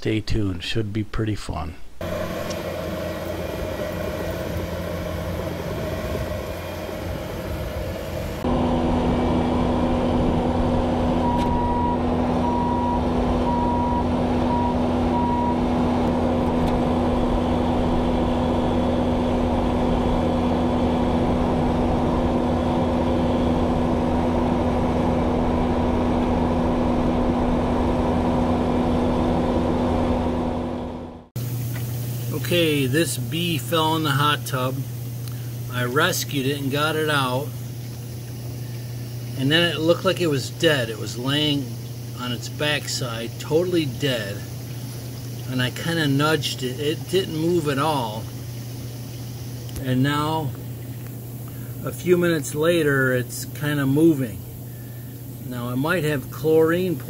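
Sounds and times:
diesel engine running: 0:02.0 - 0:57.0
beeping alarm: 0:11.2 - 0:15.7.

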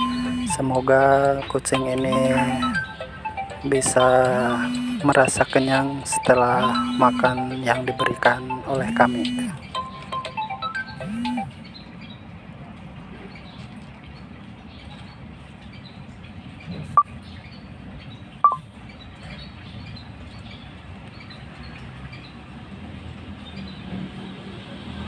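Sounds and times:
bird chirps: 0:00.0 - 0:12.3
outdoor background hum: 0:00.0 - 0:25.0.

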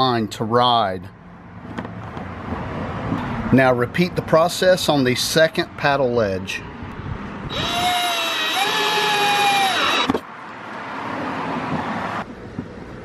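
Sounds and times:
power drill whine: 0:07.5 - 0:10.2.

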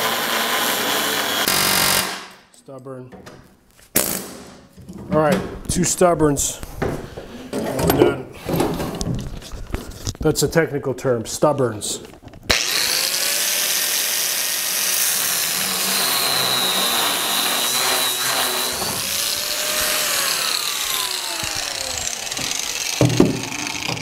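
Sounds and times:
angle grinder whining: 0:00.0 - 0:02.1, 0:12.5 - 0:24.0
knocks: 0:22.4 - 0:24.0.

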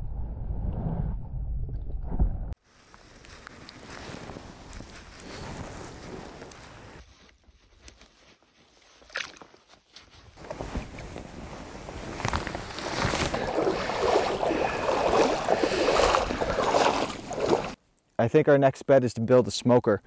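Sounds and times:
water sloshing and splashing: 0:10.4 - 0:17.8.

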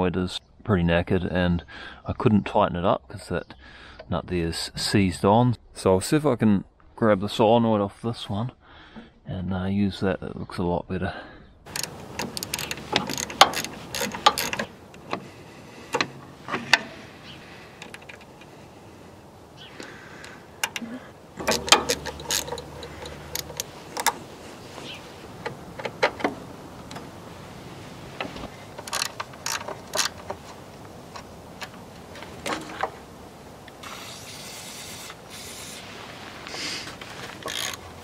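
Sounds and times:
hand tools clinking on metal: 0:20.6 - 0:24.2
aerosol spray hiss: 0:33.8 - 0:36.9.

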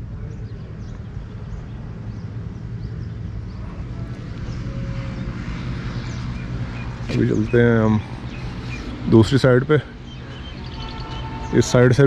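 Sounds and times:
low hum: 0:00.0 - 0:12.0
bird chirps: 0:09.9 - 0:12.0.

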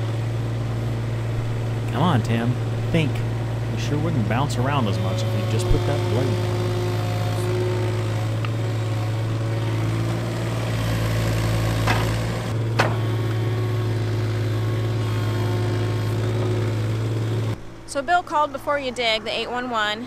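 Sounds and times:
excavator diesel engine running: 0:00.0 - 0:20.0
sharp knocks: 0:11.8 - 0:13.1.

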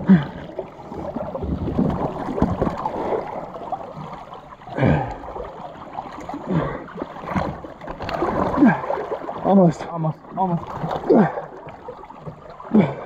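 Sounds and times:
river water sloshing and splashing: 0:00.0 - 0:13.0
person grunting with effort: 0:04.8 - 0:05.2, 0:12.7 - 0:13.0.

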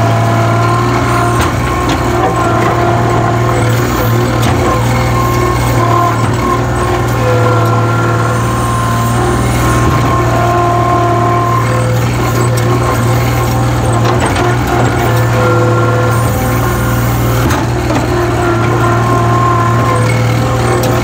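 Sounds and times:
loader engine running: 0:00.0 - 0:21.0.

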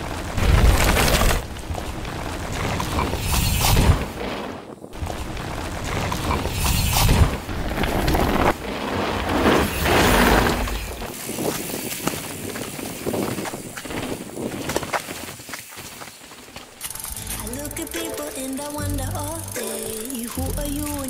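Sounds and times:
tyres skidding through gravel: 0:00.0 - 0:17.6
bike rattling: 0:00.0 - 0:21.0
freehub clicking: 0:16.8 - 0:21.0.

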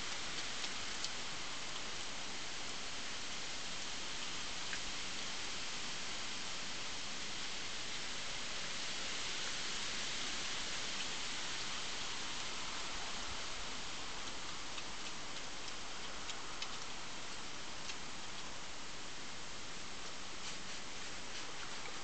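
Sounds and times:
steady hiss: 0:00.0 - 0:22.0
animal chewing ticks and clicks: 0:00.1 - 0:02.0, 0:13.2 - 0:18.9, 0:20.0 - 0:22.0.

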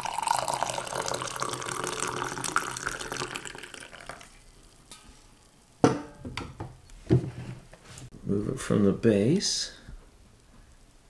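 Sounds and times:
coffee pouring into a mug: 0:00.0 - 0:04.8
carafe knocked onto wooden table: 0:05.8 - 0:07.3.

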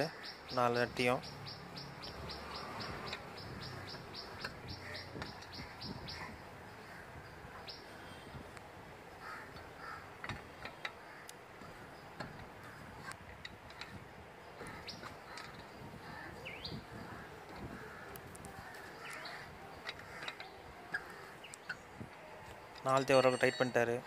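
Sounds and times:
sharp metallic clicks of wheel spanner: 0:02.0 - 0:05.6
crows cawing: 0:02.5 - 0:08.0, 0:09.1 - 0:14.0, 0:14.6 - 0:21.6.

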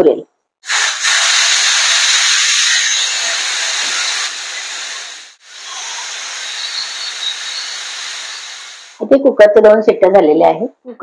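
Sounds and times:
pressure cooker steam hissing: 0:00.6 - 0:09.0.

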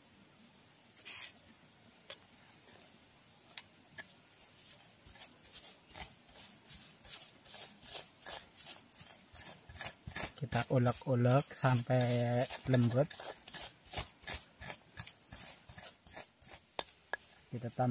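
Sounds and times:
stone pestle grinding in mortar: 0:04.6 - 0:17.9
stone pestle tapping: 0:09.7 - 0:17.4.

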